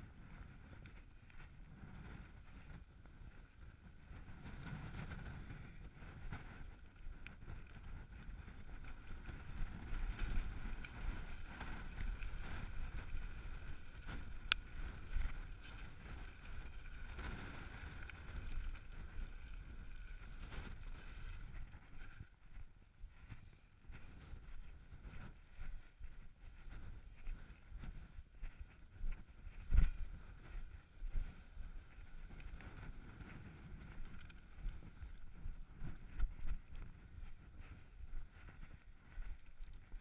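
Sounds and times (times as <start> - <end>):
wind buffeting microphone: 0.0 - 40.0
bike rattling: 6.7 - 22.4.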